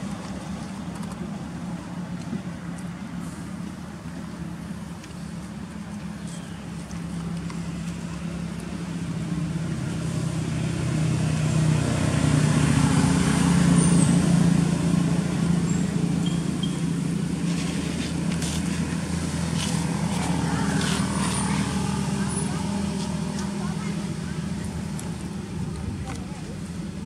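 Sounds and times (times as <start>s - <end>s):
vehicle engine passing by: 7.0s - 26.2s.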